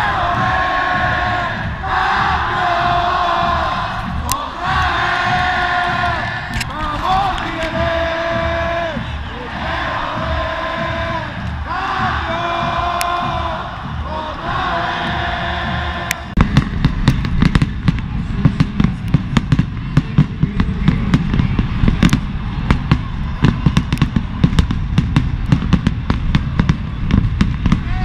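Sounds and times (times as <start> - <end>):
stadium crowd chanting: 0.0 - 16.5
heavy low rumble: 0.0 - 28.0.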